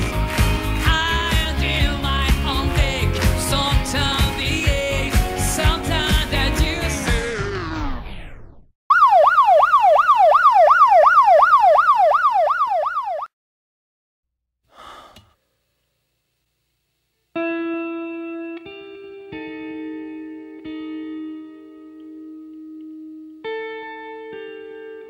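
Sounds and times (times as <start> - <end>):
song playing: 0.0 - 8.3
siren-like yelp tone: 8.9 - 13.3
plucked guitar notes: 17.4 - 25.0.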